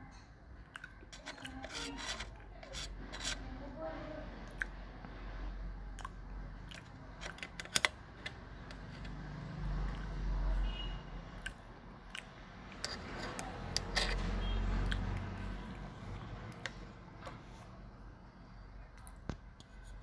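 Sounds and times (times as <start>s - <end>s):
chewing: 0.6s - 2.8s, 4.4s - 4.8s, 5.9s - 7.7s, 11.4s - 15.6s
spoon scraping metal plate: 1.1s - 3.6s, 12.7s - 14.7s.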